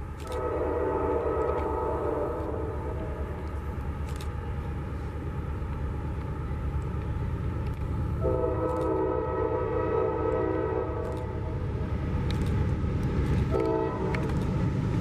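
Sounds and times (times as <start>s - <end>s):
freight train rumbling: 0.0s - 15.0s
locomotive air horn chord: 0.2s - 2.9s, 8.2s - 11.1s, 13.5s - 14.2s.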